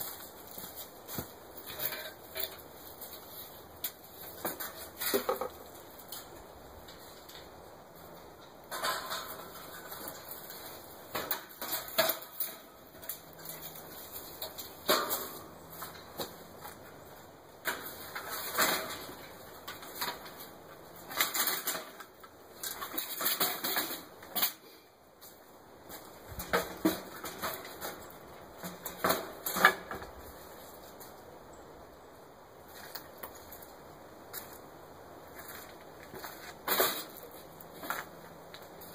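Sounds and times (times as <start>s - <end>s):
metal mesh screens clanking: 1.6s - 2.7s, 8.2s - 16.8s.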